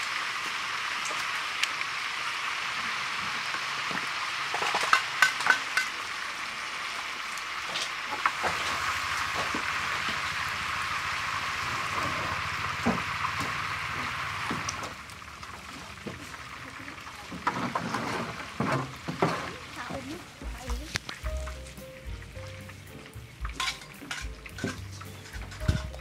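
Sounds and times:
fish sizzling in oil: 0:00.0 - 0:26.0
metal utensils clinking on a pan: 0:04.5 - 0:06.1, 0:23.5 - 0:26.0.

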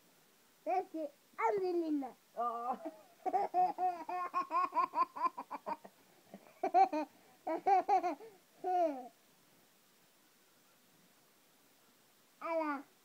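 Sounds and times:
toddler laughing: 0:02.7 - 0:09.1.

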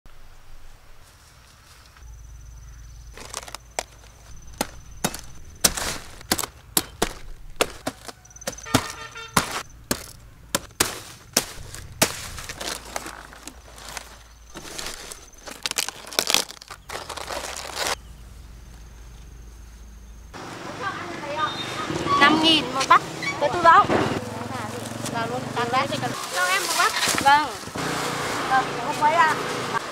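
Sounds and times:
sharp chopping strikes: 0:04.4 - 0:13.6.

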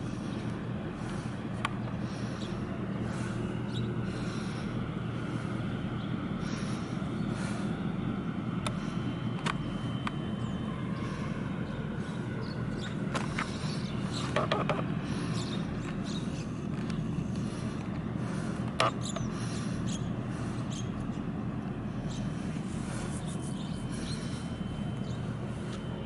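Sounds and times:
ship engines rumbling: 0:00.0 - 0:26.0.

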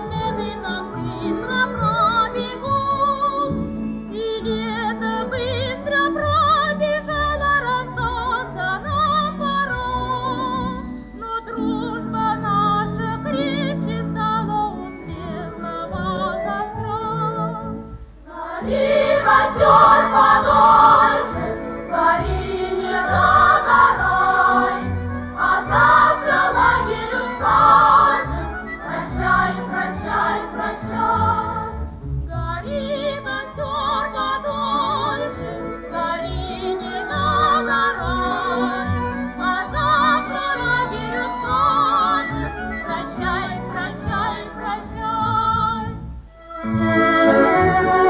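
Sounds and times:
instrumental accompaniment: 0:00.0 - 0:48.0
choir singing with vibrato: 0:18.2 - 0:48.0.

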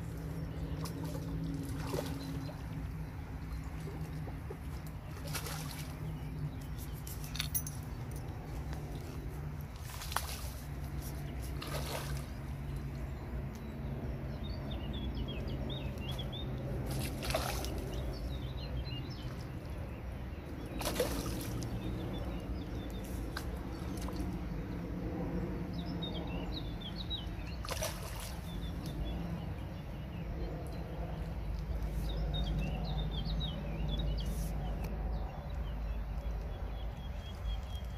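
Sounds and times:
fish splashing in water: 0:00.2 - 0:06.4, 0:08.8 - 0:13.0, 0:16.2 - 0:18.4, 0:19.1 - 0:24.6, 0:27.4 - 0:29.2.

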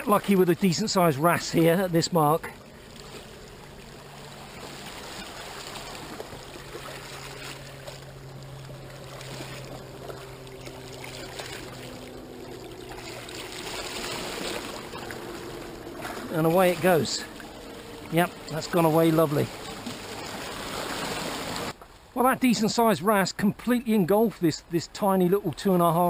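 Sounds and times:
water sloshing and trickling: 0:00.0 - 0:22.2.

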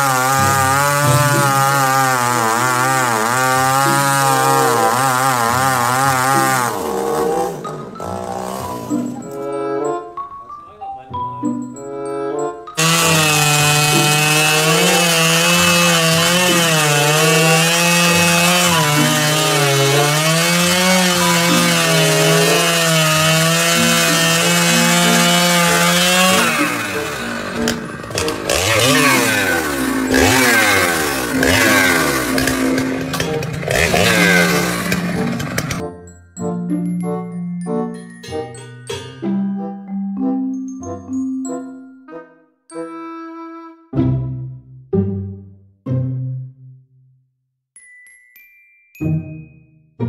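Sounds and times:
chainsaw cutting log: 0:00.0 - 0:09.4, 0:12.8 - 0:35.8.

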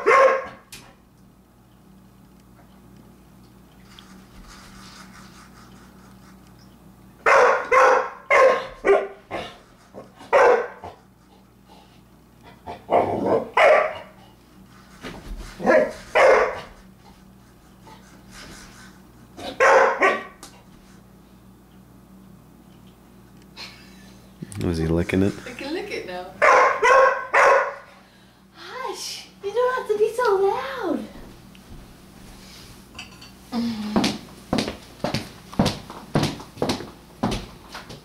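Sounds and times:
dog barking: 0:00.0 - 0:00.6, 0:07.2 - 0:09.6, 0:10.3 - 0:11.0, 0:12.9 - 0:14.1, 0:15.6 - 0:16.7, 0:19.4 - 0:20.4, 0:26.4 - 0:27.9.

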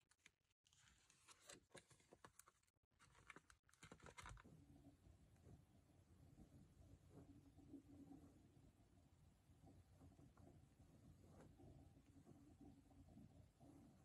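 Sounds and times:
paper rustling: 0:00.0 - 0:04.5
faint low hum: 0:03.0 - 0:14.0.

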